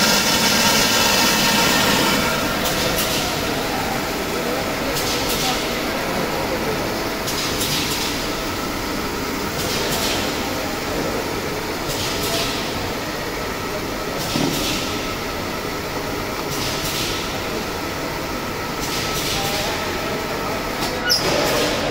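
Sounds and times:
machine hiss: 0.0s - 5.8s.

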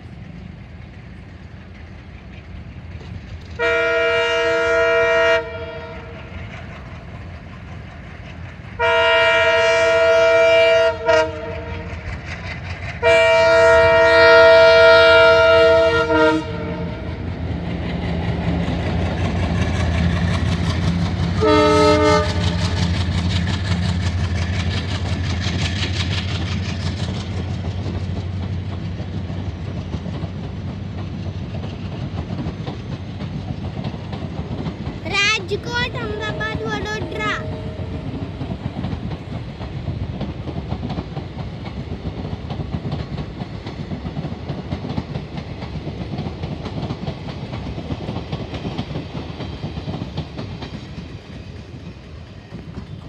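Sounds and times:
train rumble and clickety-clack: 0.0s - 53.0s
train horn blasts: 3.6s - 6.2s, 8.8s - 12.0s, 13.0s - 17.2s, 21.4s - 22.8s, 36.2s - 38.1s.

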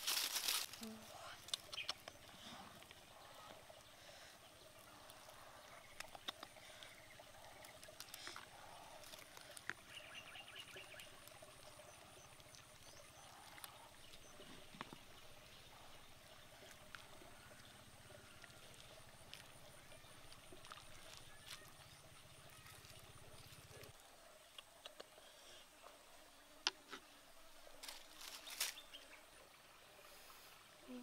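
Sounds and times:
soup trickling: 0.0s - 29.7s.

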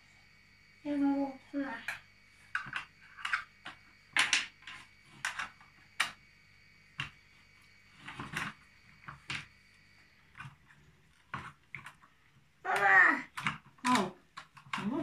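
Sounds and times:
plastic toy parts clicking: 12.7s - 15.0s.

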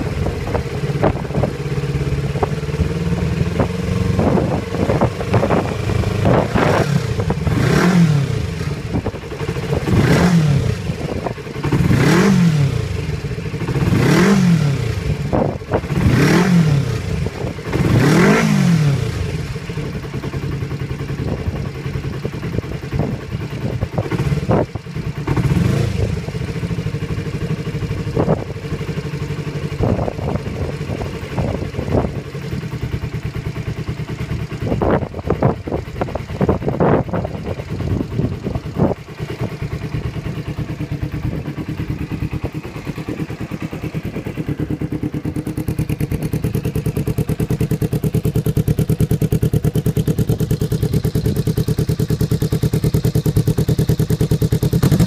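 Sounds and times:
motorcycle engine idling and revving: 0.0s - 55.0s.

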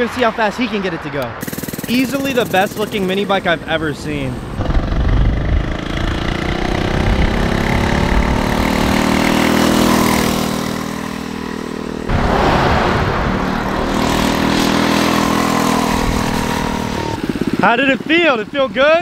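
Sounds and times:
small engine revving: 1.4s - 12.1s, 13.9s - 17.9s
rush of noise: 12.1s - 17.2s.

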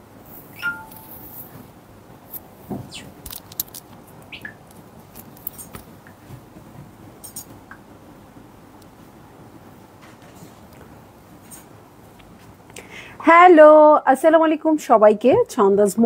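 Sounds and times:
steady room hum: 0.0s - 16.0s
small clicks and metallic clinks: 3.3s - 4.0s, 4.7s - 5.8s.

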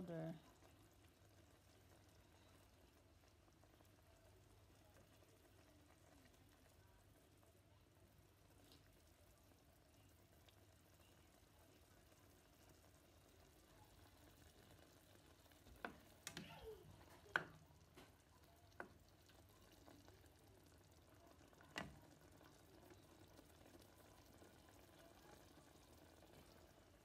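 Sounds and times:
faint simmering hiss: 0.0s - 27.0s
spatula tapping a pan: 17.3s - 18.1s.

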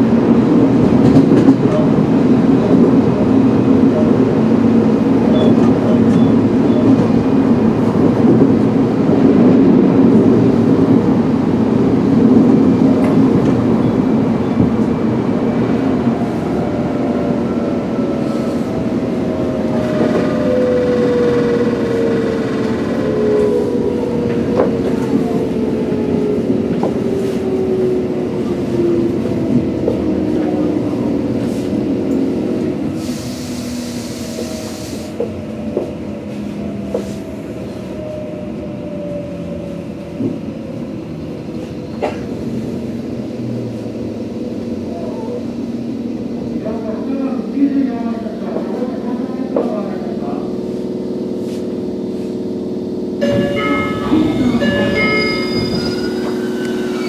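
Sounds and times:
rumbling wheel and running noise: 18.0s - 55.8s
train traction motors whining: 48.9s - 57.0s.

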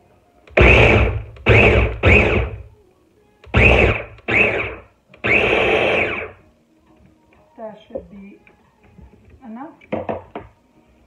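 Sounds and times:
food chopper blades whirring: 0.6s - 2.6s, 3.6s - 6.3s.

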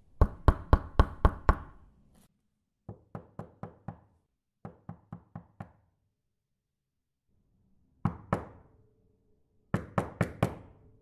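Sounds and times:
knocking on a door: 2.9s - 5.8s, 9.7s - 10.7s.

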